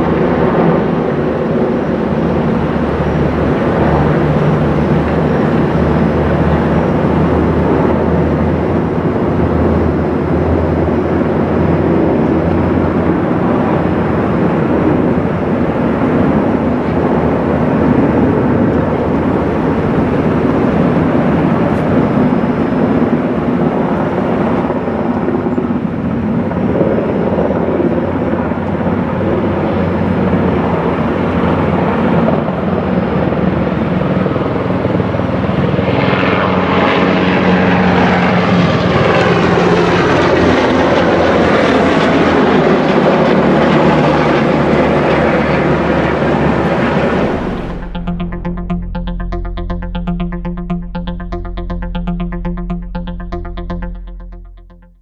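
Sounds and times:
higher sweeping tones: 47.1s - 55.0s.

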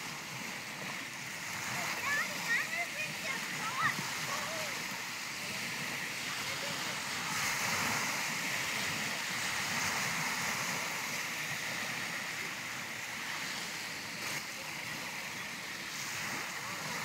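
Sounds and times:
small waves washing on shore: 0.0s - 17.0s.

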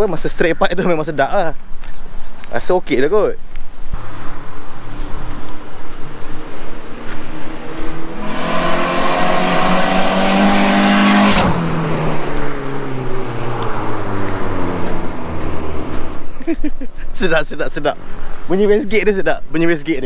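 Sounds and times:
car engine accelerating past: 4.0s - 16.2s.

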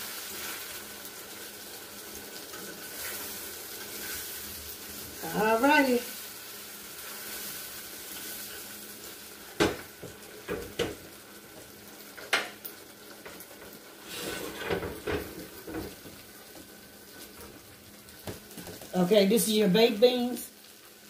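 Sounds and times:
food sizzling in a frying pan: 0.0s - 21.0s.

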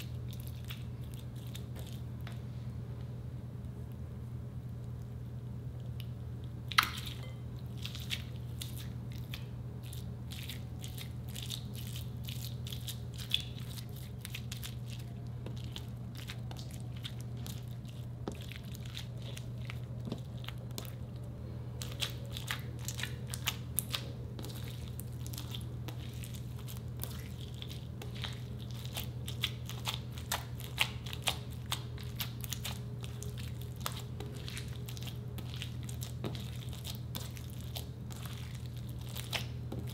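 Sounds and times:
steady low hum: 0.0s - 39.9s
slime squished by hand: 21.8s - 39.9s.

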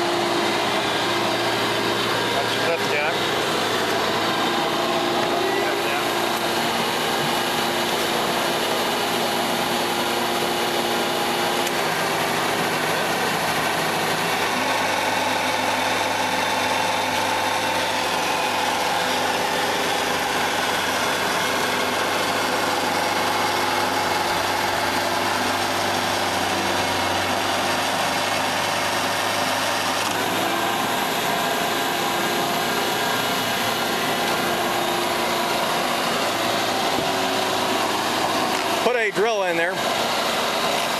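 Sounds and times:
roof bolter blower running: 0.0s - 40.9s.

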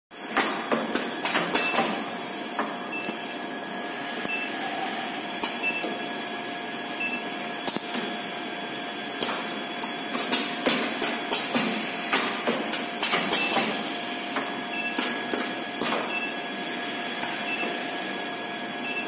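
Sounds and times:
pneumatic clamps clacking: 0.3s - 2.0s, 9.2s - 13.8s.

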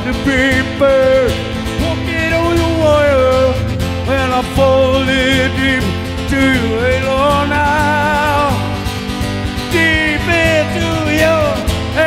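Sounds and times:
acoustic guitar: 0.0s - 12.0s
bass guitar: 0.0s - 12.0s.

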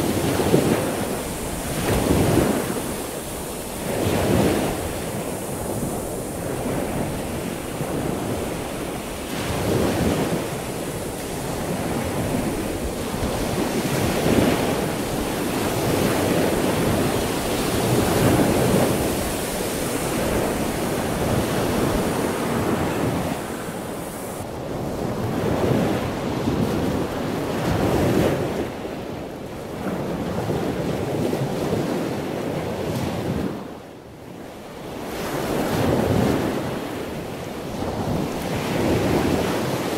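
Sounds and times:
heavy surf breaking: 0.0s - 28.9s
wind buffeting microphone: 0.0s - 39.9s.

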